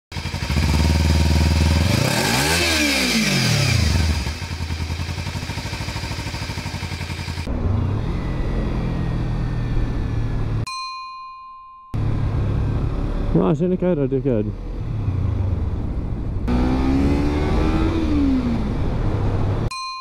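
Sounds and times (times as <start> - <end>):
motorcycle engine running steadily: 0.1 - 10.6
motorcycle engine revving: 0.1 - 10.7, 12.0 - 19.7.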